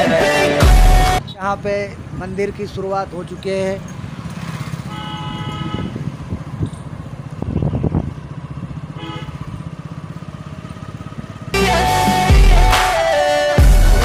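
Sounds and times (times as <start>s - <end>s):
motorcycle engine running: 3.8s - 11.6s.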